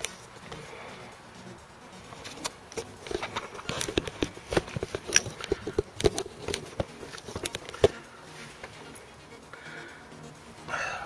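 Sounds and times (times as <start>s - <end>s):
plastic and metal clicks and knocks: 2.3s - 8.0s.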